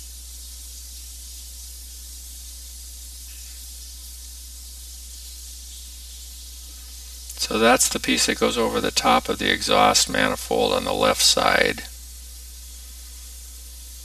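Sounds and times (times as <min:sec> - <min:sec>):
steady hiss: 0:00.0 - 0:14.0
low hum: 0:07.3 - 0:11.9.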